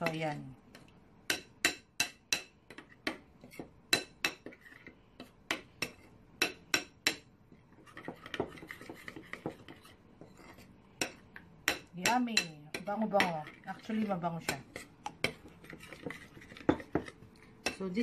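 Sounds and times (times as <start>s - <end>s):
spoon scraping bowl: 2.7s - 6.2s, 7.5s - 11.2s, 12.1s - 18.0s.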